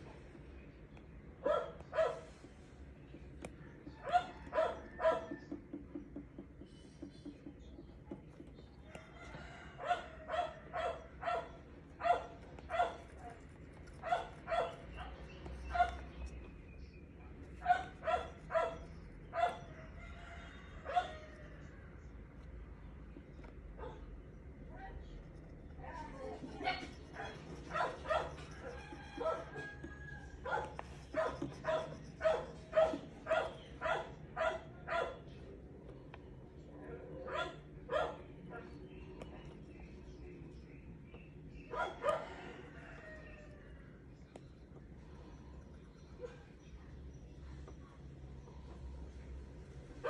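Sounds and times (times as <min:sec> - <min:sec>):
dog barking: 0:01.4 - 0:02.3, 0:04.0 - 0:05.6, 0:09.8 - 0:13.4, 0:14.0 - 0:16.0, 0:17.6 - 0:19.8, 0:20.9 - 0:21.2, 0:23.8 - 0:24.1, 0:26.6 - 0:29.6, 0:30.4 - 0:35.4, 0:37.2 - 0:38.8, 0:41.7 - 0:42.4.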